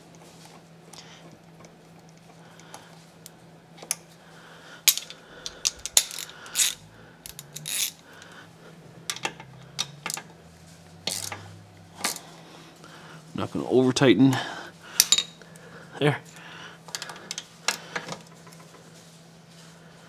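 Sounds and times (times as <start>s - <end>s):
ratchet wrench clicking: 4.9s - 8.0s, 11.0s - 11.4s.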